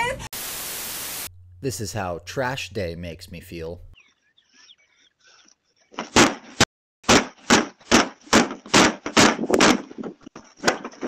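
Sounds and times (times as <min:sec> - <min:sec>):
plastic bins being kicked: 0:06.0 - 0:11.0.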